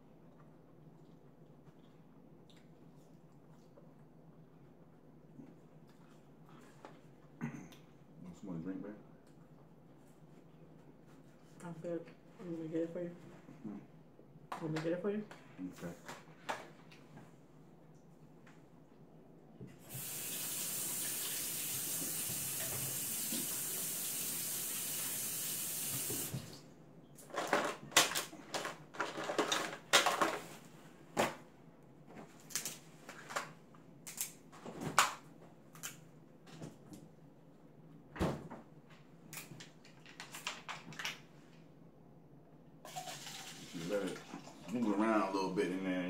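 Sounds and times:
water tap running: 19.8 - 26.6, 42.9 - 44.8.

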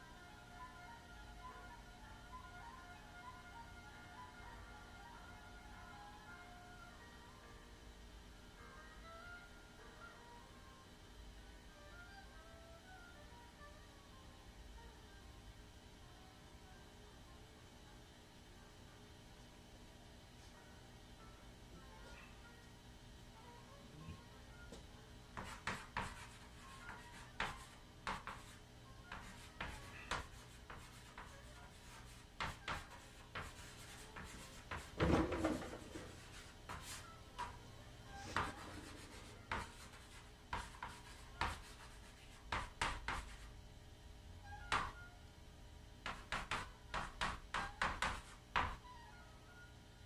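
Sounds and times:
chalk tapping and scratching: 25.3 - 43.5, 44.7 - 45.0, 46.0 - 48.8.

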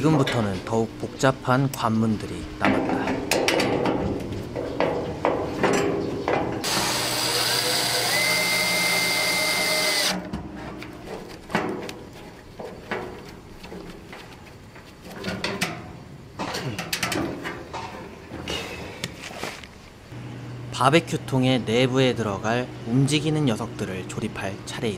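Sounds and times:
mechanical ratcheting whirring: 6.6 - 10.2.

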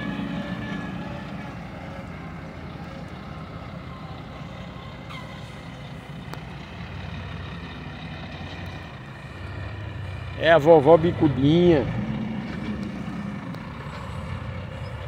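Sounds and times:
heavy vehicle engine running: 0.0 - 15.0
short falling squeal: 5.1 - 5.6.

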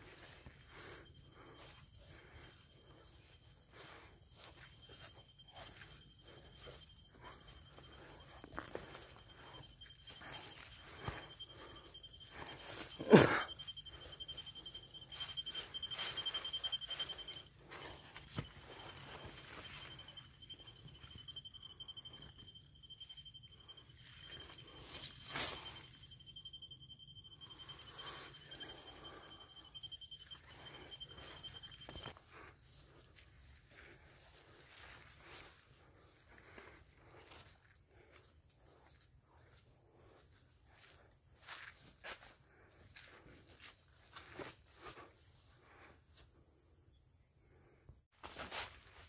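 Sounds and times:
footsteps through saplings: 0.0 - 21.4, 23.7 - 26.1
high-pitched insect trill: 0.0 - 49.0.

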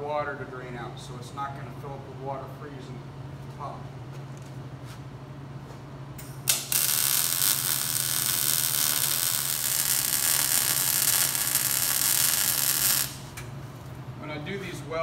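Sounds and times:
low electrical hum: 0.0 - 15.0
welding arc hissing: 6.2 - 13.9.

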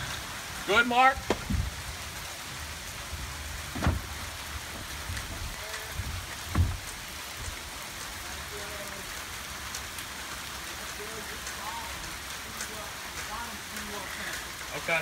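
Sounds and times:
steady rain hiss: 0.0 - 15.0
dull thumps of door frame: 1.2 - 1.8, 3.6 - 7.0.

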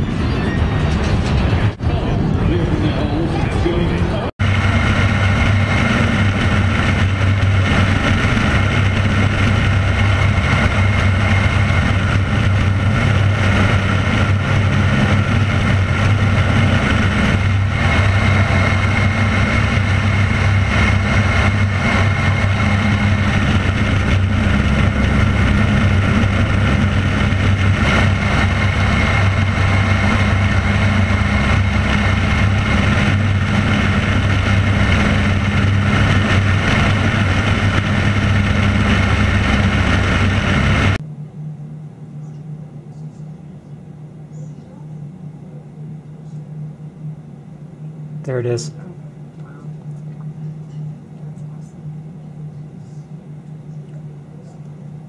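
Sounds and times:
wind rushing past microphone: 0.0 - 41.0
airplane engine droning: 0.0 - 55.0.

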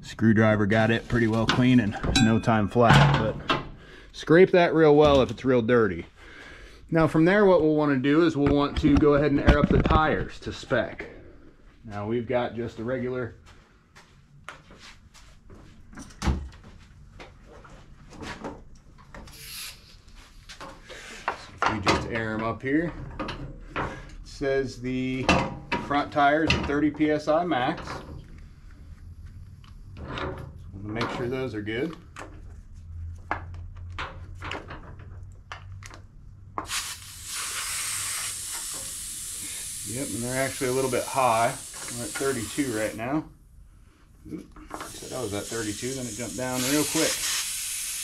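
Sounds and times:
air hose hiss: 19.3 - 20.0, 36.6 - 43.0, 44.8 - 48.0.

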